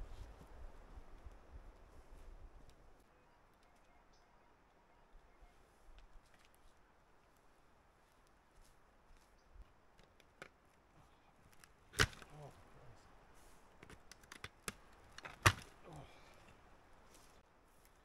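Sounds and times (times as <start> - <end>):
clicks and scrapes in dirt: 9.9 - 18.0.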